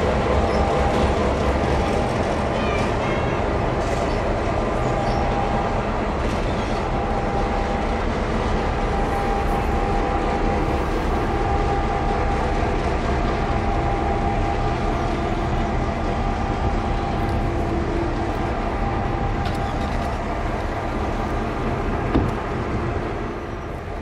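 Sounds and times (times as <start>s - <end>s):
diesel locomotive engine running: 0.0s - 24.0s
thin steady whine: 6.8s - 23.9s.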